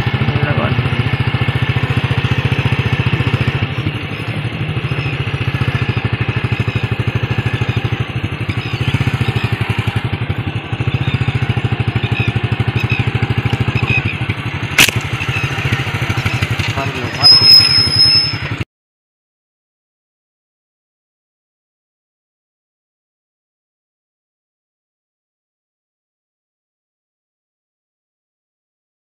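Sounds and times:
motorcycle engine idling: 0:00.0 - 0:18.6
slingshot snap: 0:14.8 - 0:15.1.

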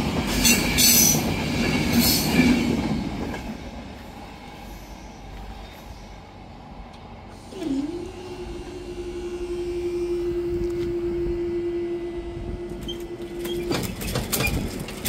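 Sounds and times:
rattle of clicks and knocks: 0:13.6 - 0:15.0.

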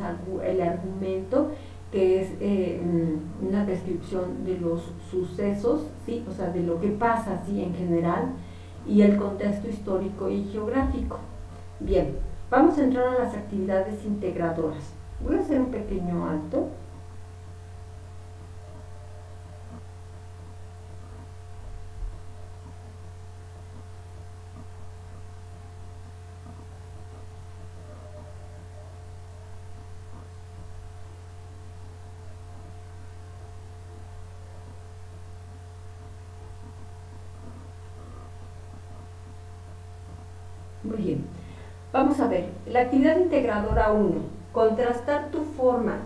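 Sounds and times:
low electrical hum: 0:00.0 - 0:46.0
faint high tones: 0:15.2 - 0:17.0.

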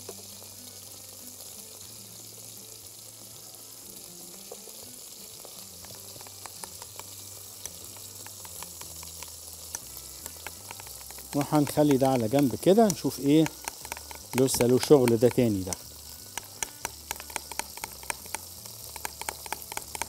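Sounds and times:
chicken sizzling in a pan: 0:00.0 - 0:20.0
metal spoon clicking on glass: 0:12.8 - 0:15.8, 0:16.4 - 0:20.0.

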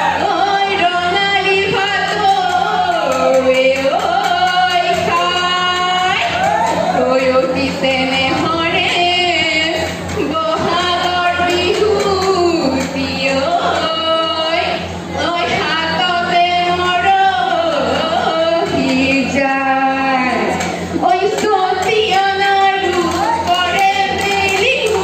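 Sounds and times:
steady low hum: 0:00.0 - 0:25.0
women singing through a pa: 0:00.0 - 0:25.0.

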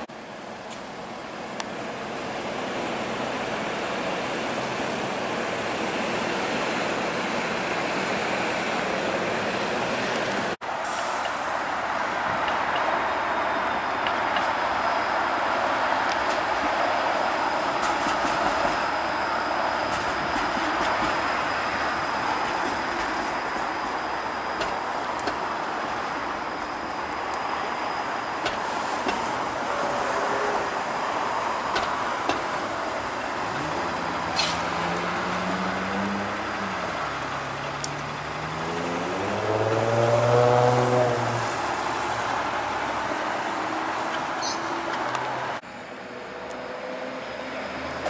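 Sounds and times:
streetcar wheels rumbling on rail: 0:00.0 - 0:48.0
high steady whine: 0:10.6 - 0:35.0.

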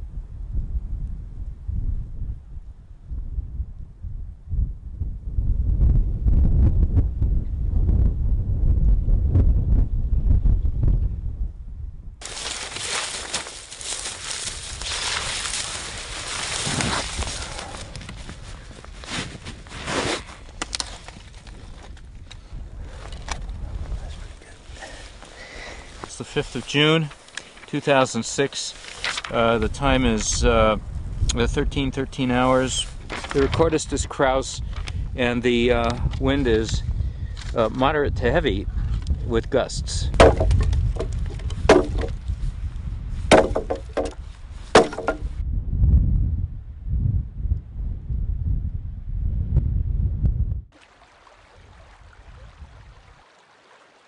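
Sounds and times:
wind rumble on microphone: 0:00.0 - 0:26.6, 0:29.1 - 0:50.8, 0:51.5 - 0:53.2
twigs and litter rustling: 0:12.2 - 0:22.0, 0:24.1 - 0:29.4
axe chopping into log: 0:40.2 - 0:42.2, 0:43.3 - 0:44.2, 0:44.8 - 0:45.3.

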